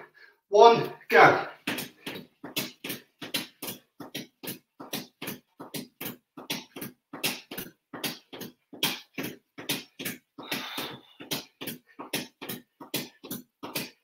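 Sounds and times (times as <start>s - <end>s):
man breathing hard: 0.0s - 0.5s, 10.4s - 12.0s
feet stepping: 1.6s - 14.0s.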